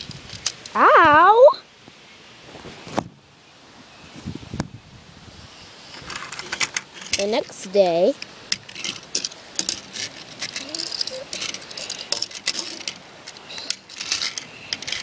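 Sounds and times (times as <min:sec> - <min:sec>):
toy train clicking and rattling: 0:06.0 - 0:15.0.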